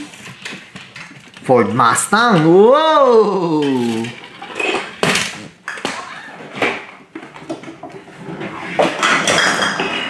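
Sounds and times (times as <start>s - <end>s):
rustling and shuffling: 0.0s - 9.3s
toys clacking and knocking: 3.4s - 10.0s.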